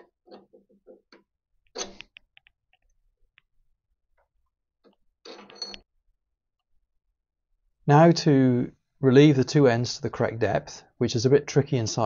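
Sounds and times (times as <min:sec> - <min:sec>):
metal scraping and clinking: 0:05.2 - 0:05.9.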